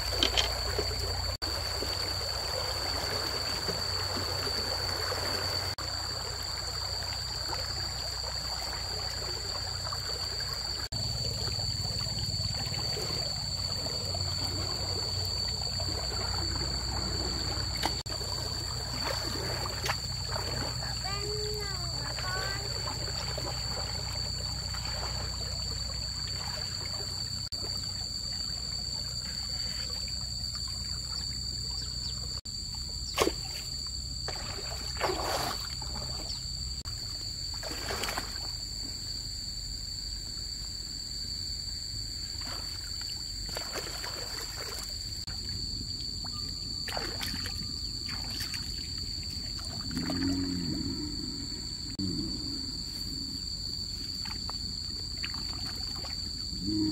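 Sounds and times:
short water splashes: 0.0 - 31.9, 33.1 - 33.7, 34.3 - 36.4, 37.5 - 38.5, 42.4 - 45.2, 46.8 - 50.7, 53.9 - 56.4
water trickling: 0.0 - 32.2.

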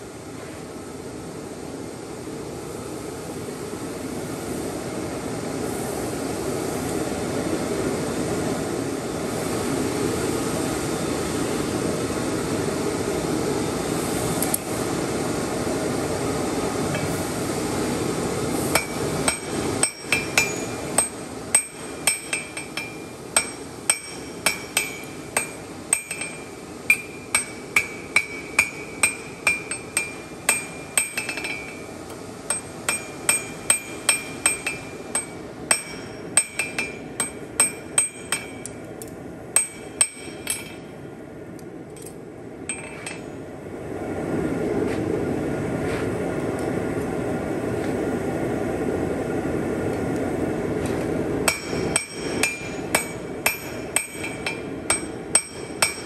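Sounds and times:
steady rushing roar: 6.1 - 56.0
hammer striking steel on anvil: 18.7 - 31.9, 32.5 - 38.8, 39.5 - 41.0, 42.7 - 43.4, 51.4 - 56.0.

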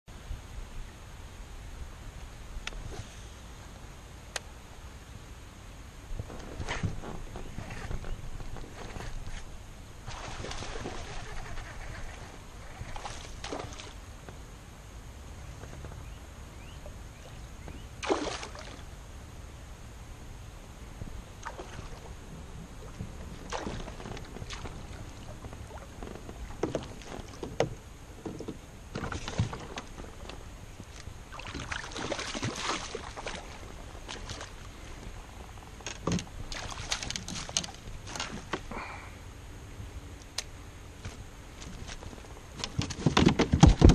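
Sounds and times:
low steady rumble: 0.1 - 42.8
paddle splashing in water: 10.0 - 11.6, 12.8 - 14.0, 18.0 - 18.8, 21.4 - 22.1, 22.8 - 35.4, 36.0 - 38.9
paddle knocking against hull: 22.9 - 30.3, 42.6 - 43.9.

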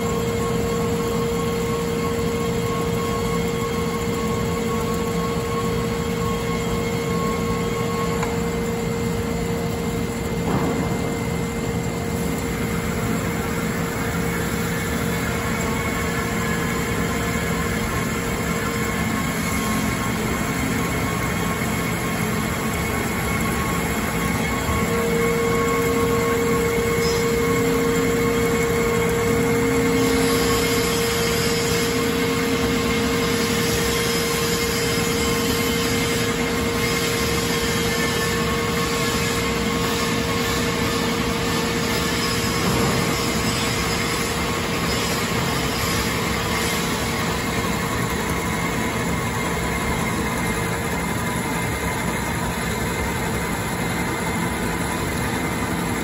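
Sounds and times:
bandsaw cutting metal: 14.2 - 48.1.

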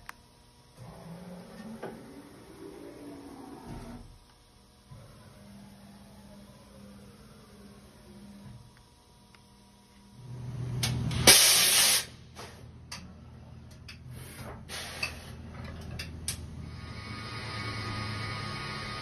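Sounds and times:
tool carousel mechanical hum: 0.0 - 19.0
short air hisses: 11.2 - 12.2, 14.1 - 15.4
compressed air hiss: 11.2 - 12.5, 14.1 - 15.4.

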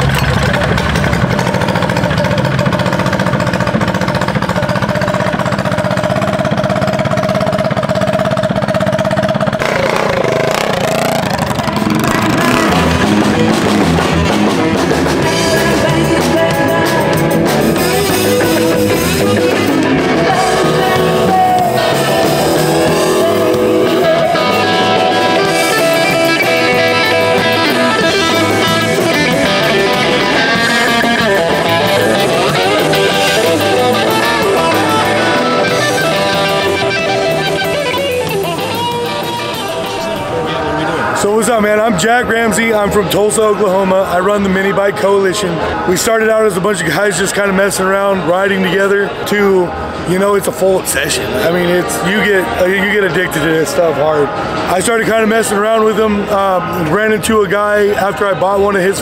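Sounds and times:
minibike engine running: 0.0 - 46.2
rock band music: 0.0 - 57.5.

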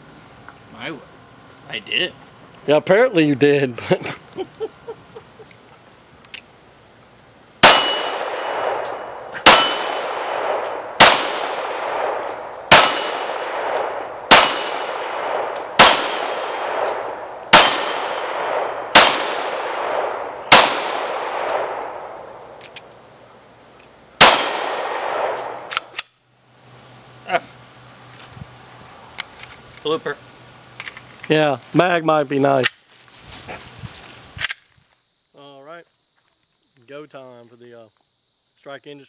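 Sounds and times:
steel targets ringing: 7.6 - 8.7, 9.4 - 10.2, 11.0 - 11.7, 12.7 - 13.6, 14.3 - 15.2, 17.5 - 18.2, 18.9 - 19.5
pistol shots: 7.6 - 22.2, 24.2 - 26.0.

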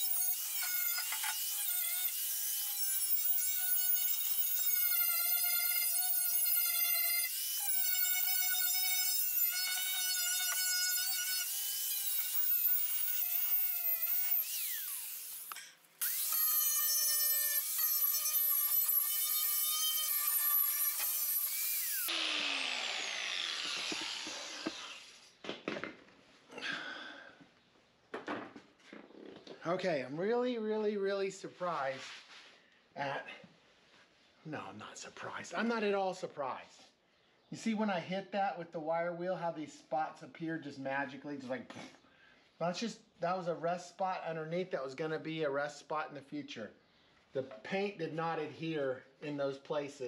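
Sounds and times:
wire wheel grinder whining: 7.3 - 25.3.

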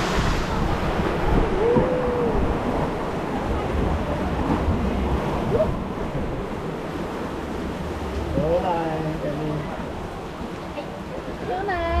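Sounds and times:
wind buffeting microphone: 0.0 - 8.8
water rushing around raft: 0.0 - 12.0.

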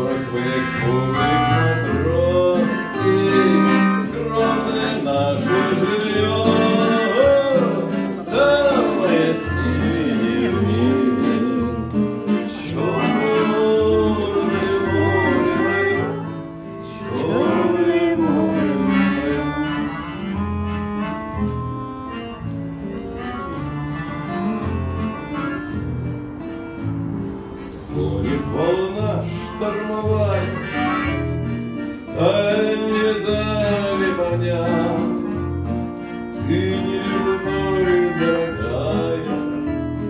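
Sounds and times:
acoustic guitar: 0.0 - 40.0
button accordion: 0.0 - 40.0.

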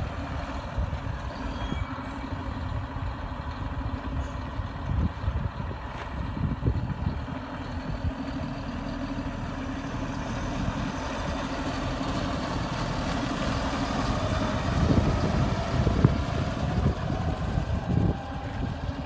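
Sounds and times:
tractor diesel engine passing: 0.0 - 19.0.

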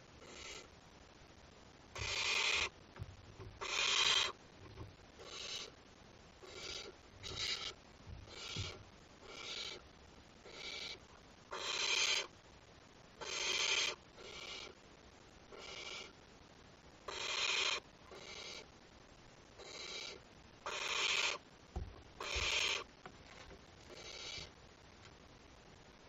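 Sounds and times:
owlets hissing begging calls: 2.0 - 2.7, 3.6 - 4.4, 10.5 - 12.3, 13.2 - 14.7, 17.1 - 18.6, 20.7 - 21.4, 22.2 - 22.9.

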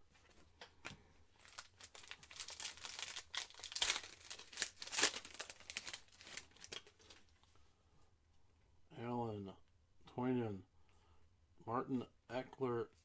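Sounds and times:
foil wrapper crinkling and tearing: 1.4 - 7.3.

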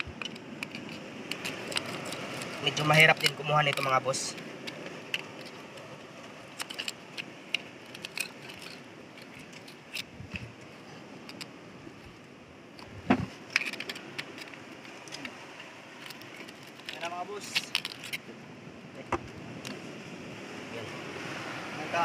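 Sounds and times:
knife scraping against rock: 0.0 - 5.9, 6.5 - 11.5.

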